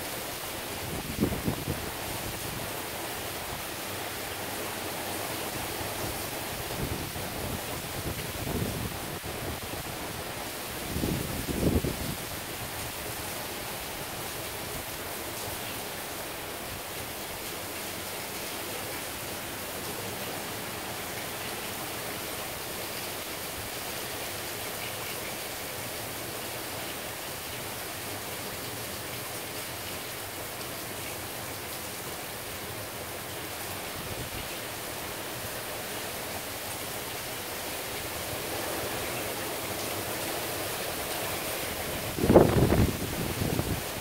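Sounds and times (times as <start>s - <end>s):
gusting wind: 0.0s - 15.1s, 40.4s - 44.0s
heavy rain hissing: 0.0s - 44.0s.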